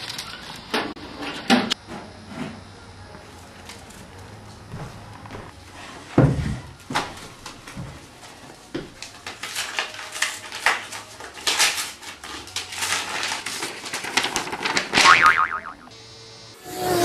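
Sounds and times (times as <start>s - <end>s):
paper rustling and ripping: 8.9s - 15.2s.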